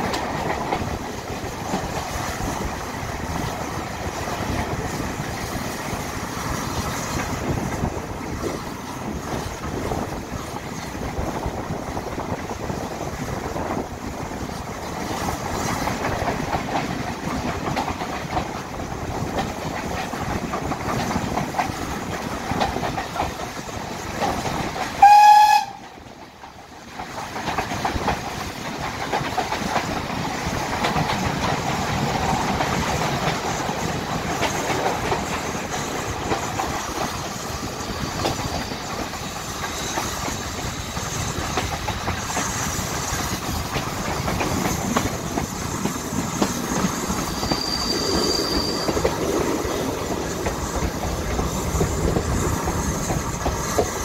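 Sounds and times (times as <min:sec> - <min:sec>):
train wheels clickety-clack on rails: 0:00.0 - 0:54.0
locomotive whistle blast: 0:25.0 - 0:25.9, 0:47.3 - 0:49.0
high squeal: 0:47.0 - 0:49.7.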